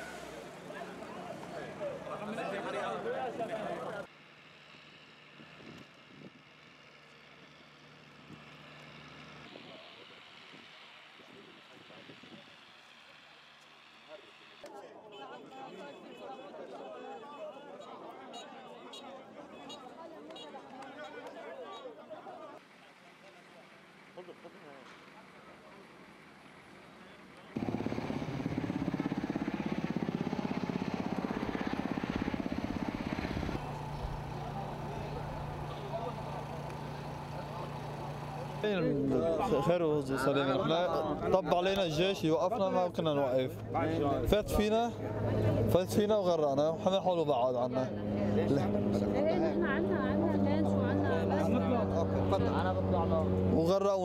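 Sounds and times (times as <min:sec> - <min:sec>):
faint engine hum: 0:00.0 - 0:14.7, 0:22.5 - 0:54.0
harbour background noise: 0:00.0 - 0:53.9
helicopter rotor thudding: 0:27.6 - 0:38.7
low engine hum: 0:27.6 - 0:39.4, 0:47.8 - 0:53.8.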